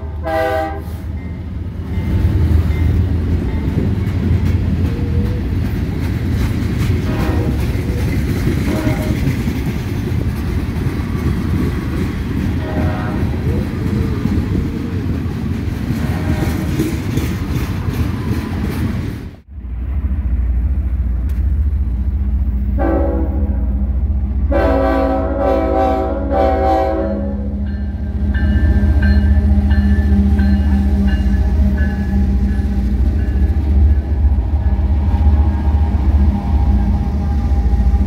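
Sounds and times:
train horn blasts: 0:00.0 - 0:01.2, 0:07.0 - 0:07.8, 0:08.6 - 0:09.3, 0:12.6 - 0:13.5, 0:22.7 - 0:23.8, 0:24.4 - 0:28.2
diesel locomotive engine running: 0:00.0 - 0:38.0
freight train rumbling and clattering: 0:00.0 - 0:38.0.

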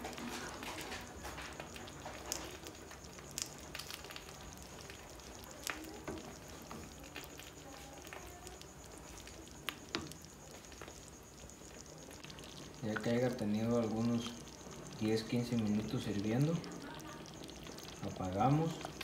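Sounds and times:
sauce bubbling and sizzling: 0:00.0 - 0:19.0.

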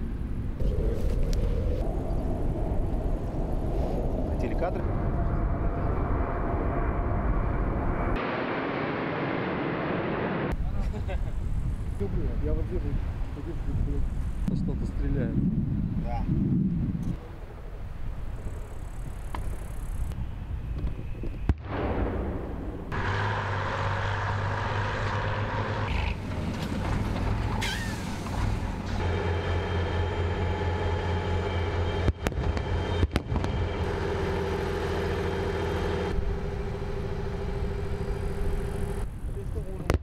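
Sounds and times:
heavy engines humming: 0:22.8 - 0:39.6.

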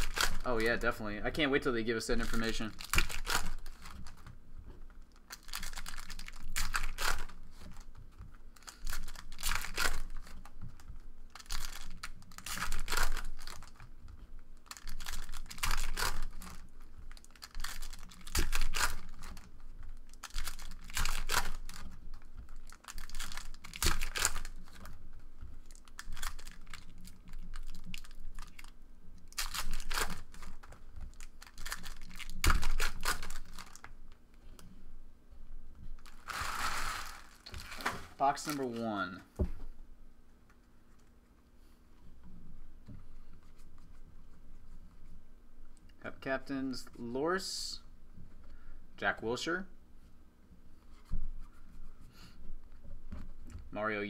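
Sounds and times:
foil card packs tearing: 0:00.0 - 0:01.0, 0:02.2 - 0:04.2, 0:05.2 - 0:07.9, 0:08.6 - 0:10.3, 0:11.3 - 0:13.8, 0:14.6 - 0:25.0, 0:25.6 - 0:28.7, 0:29.3 - 0:33.9, 0:36.0 - 0:39.0
wrappers crinkling: 0:00.0 - 0:01.0, 0:01.6 - 0:04.3, 0:05.0 - 0:13.9, 0:14.5 - 0:34.0, 0:36.0 - 0:39.1
cards being handled: 0:14.6 - 0:33.9, 0:36.0 - 0:39.0.

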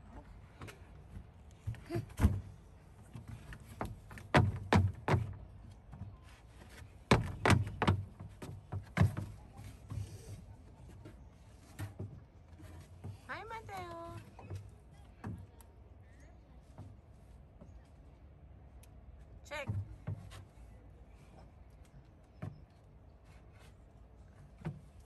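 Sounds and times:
knocks on wooden play structure: 0:03.2 - 0:05.4, 0:07.1 - 0:09.4.

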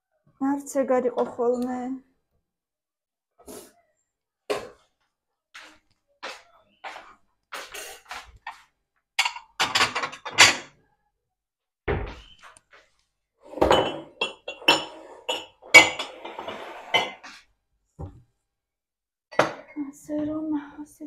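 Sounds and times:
dishes clinking and knocking: 0:07.5 - 0:10.8, 0:13.4 - 0:17.4, 0:19.3 - 0:19.8.

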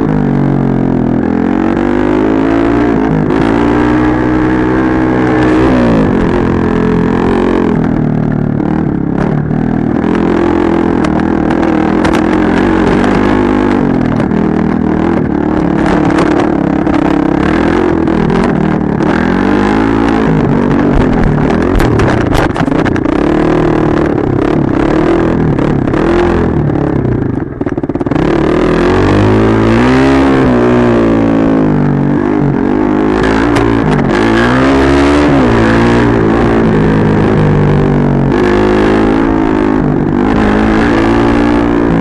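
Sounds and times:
dirt bike engine revving: 0:00.0 - 0:42.0
knocks and clatter: 0:20.8 - 0:23.4.

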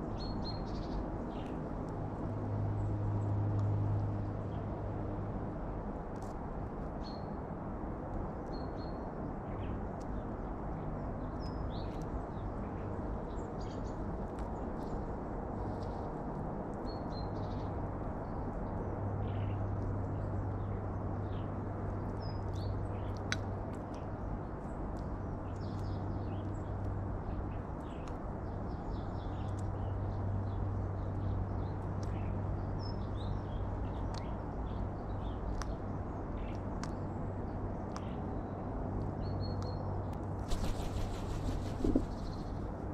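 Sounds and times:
small birds chirping: 0:39.1 - 0:42.9
crow wings fluttering: 0:40.4 - 0:42.8
steady low hum: 0:40.4 - 0:42.9.

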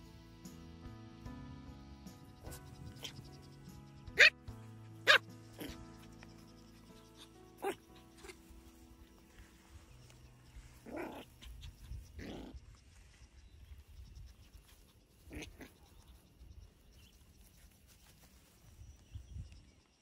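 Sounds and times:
puppy making faint sounds: 0:05.1 - 0:08.6, 0:10.8 - 0:12.8, 0:14.3 - 0:16.3.

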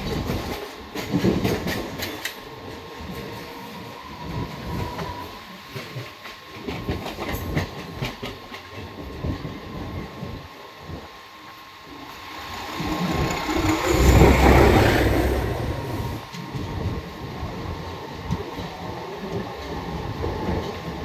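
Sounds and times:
train wheels clattering: 0:05.7 - 0:09.5, 0:11.9 - 0:16.8
passing train whoosh: 0:11.0 - 0:17.3.

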